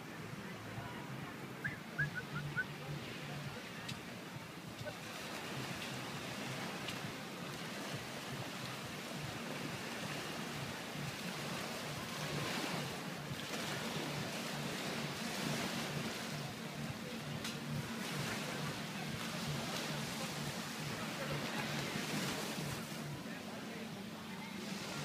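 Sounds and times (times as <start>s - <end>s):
small waves washing onto shore: 0.0s - 25.0s.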